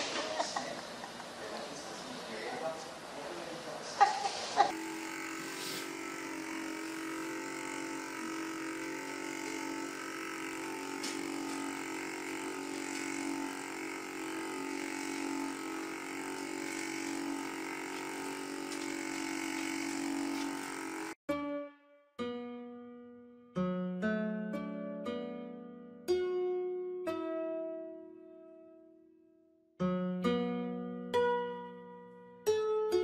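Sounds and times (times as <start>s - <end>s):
electric massager humming: 0.0s - 3.4s, 4.0s - 21.2s.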